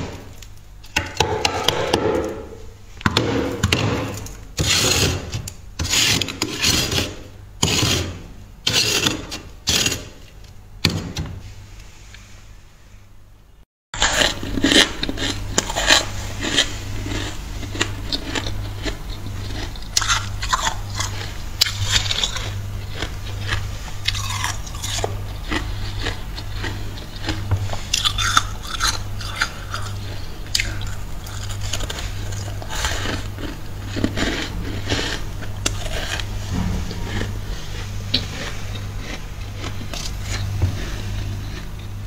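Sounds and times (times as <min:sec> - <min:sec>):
steady low hum: 0:00.0 - 0:42.0
frost crunching: 0:14.0 - 0:42.0.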